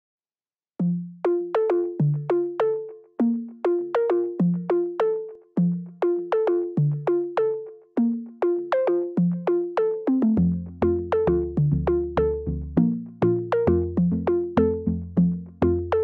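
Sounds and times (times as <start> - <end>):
electronic plucked melody: 0.8 - 16.0
deep bass line: 10.4 - 16.0.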